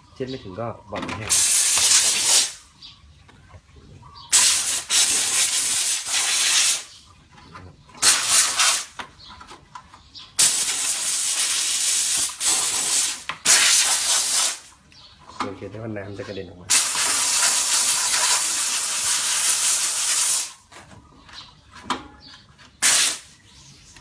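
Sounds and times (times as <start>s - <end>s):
steam cleaner jetting steam: 1.3s - 2.6s, 4.3s - 6.9s, 8.0s - 8.9s, 10.4s - 14.7s, 16.7s - 20.6s, 22.8s - 23.3s.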